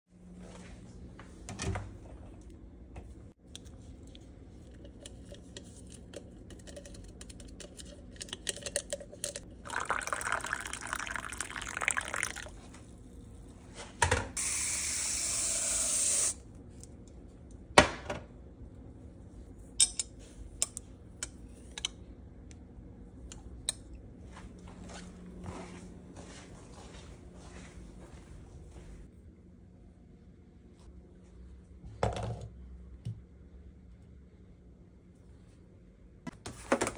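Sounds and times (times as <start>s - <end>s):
liquid pouring: 9.5s - 12.6s.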